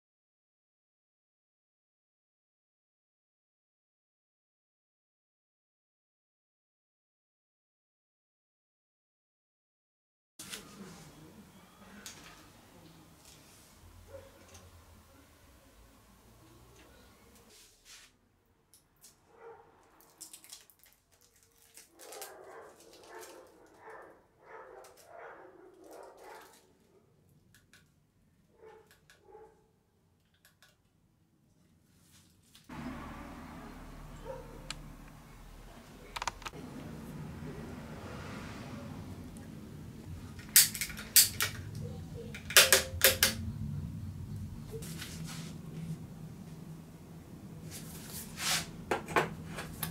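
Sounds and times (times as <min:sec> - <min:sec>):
dog barking faintly: 0:13.9 - 0:16.1, 0:19.2 - 0:19.8, 0:22.0 - 0:27.2, 0:28.5 - 0:29.7, 0:34.1 - 0:35.0.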